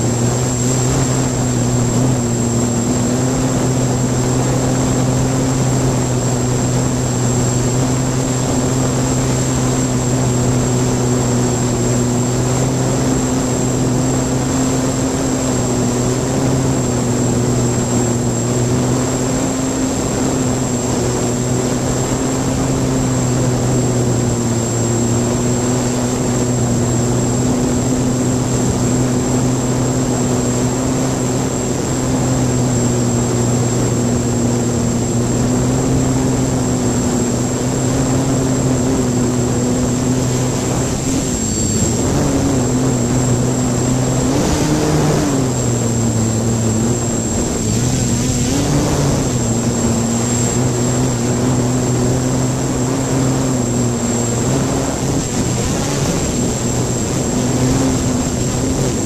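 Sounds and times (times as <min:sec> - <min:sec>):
drone motors buzzing hum: 0:00.0 - 0:59.0
thin high whine: 0:00.0 - 0:59.0.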